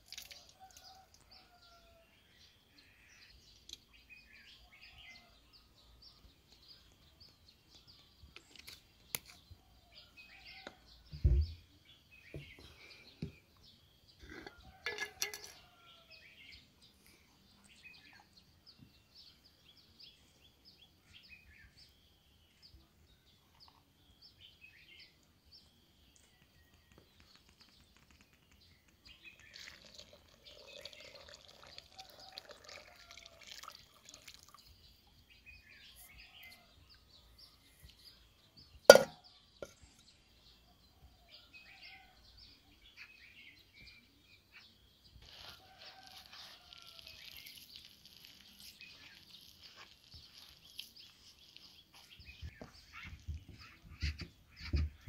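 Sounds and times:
hands kneading wet dough: 0:45.2 - 0:52.1.

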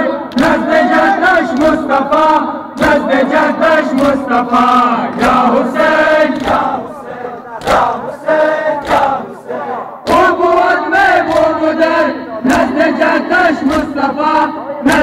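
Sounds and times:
crowd of men chanting: 0:00.0 - 0:15.0
hands slapping bare chests: 0:01.5 - 0:01.9, 0:02.8 - 0:03.1, 0:03.8 - 0:04.3, 0:05.1 - 0:05.6, 0:06.3 - 0:06.9, 0:07.6 - 0:08.1, 0:08.8 - 0:09.2, 0:10.0 - 0:10.4, 0:11.2 - 0:11.6, 0:12.5 - 0:12.8, 0:13.6 - 0:14.0.

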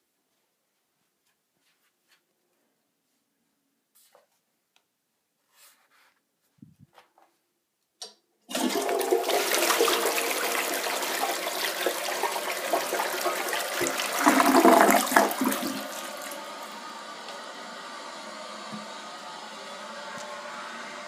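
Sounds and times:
toilet flush click: 0:08.0 - 0:17.7, 0:18.5 - 0:19.0
toilet water rushing: 0:08.5 - 0:21.0.

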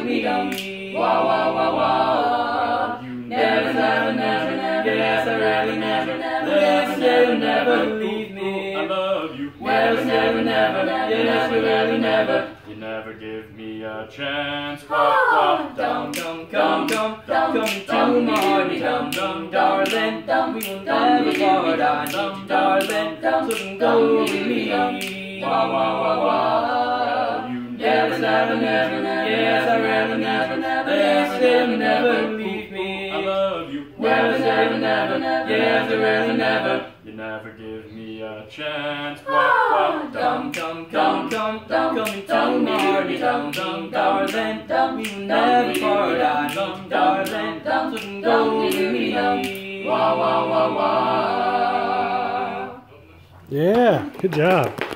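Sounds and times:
group singing in close harmony: 0:00.0 - 0:53.1
finger snaps: 0:43.5 - 0:49.6.

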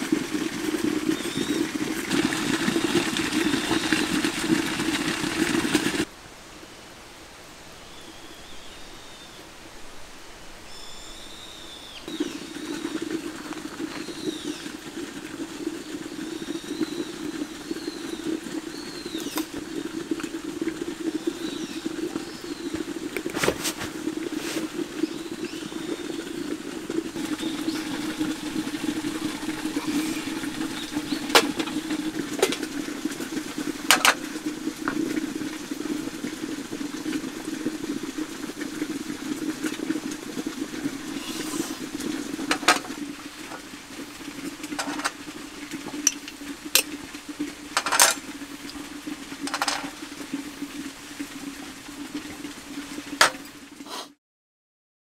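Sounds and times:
camp stove burner humming: 0:00.0 - 0:06.1, 0:12.1 - 0:48.8
birds chirping: 0:01.1 - 0:04.2, 0:10.7 - 0:15.0, 0:15.6 - 0:20.1, 0:21.0 - 0:23.4, 0:24.0 - 0:33.7.

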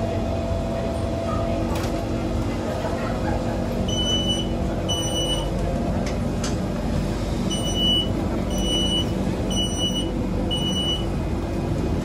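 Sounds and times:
low hum of train: 0:00.0 - 0:12.0
door warning beeps: 0:03.9 - 0:05.5, 0:07.5 - 0:11.1.

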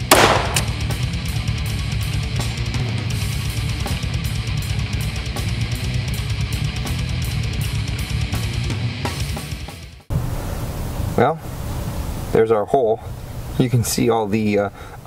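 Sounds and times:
guitar and drum music: 0:00.0 - 0:10.1.

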